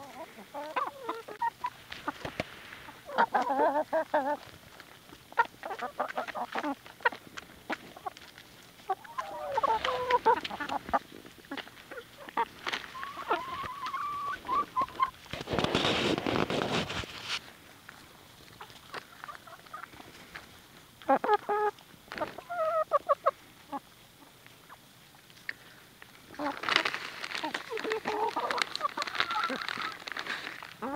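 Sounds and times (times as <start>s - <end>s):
hens clucking: 0.0s - 30.9s
beaks tapping on ground: 4.3s - 15.7s, 24.3s - 30.9s.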